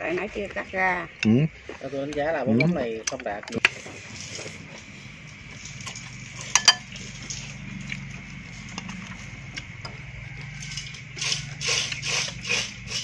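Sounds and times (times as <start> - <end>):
low steady hum: 2.3 - 11.2
utensils clinking against bowls: 5.5 - 9.0, 10.6 - 13.0.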